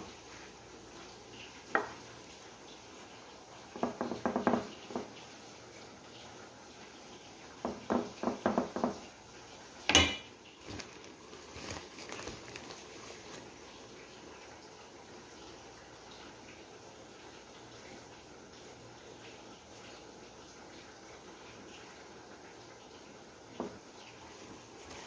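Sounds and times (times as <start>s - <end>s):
wooden spatula tapping glass dish: 7.7s - 9.0s.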